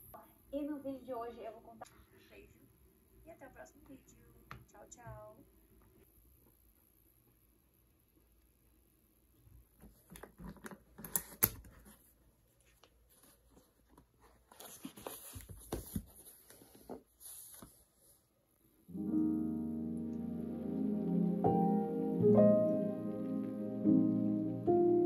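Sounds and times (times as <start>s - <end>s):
book pages rustling: 9.8s - 18.3s
soft piano music: 18.9s - 25.0s.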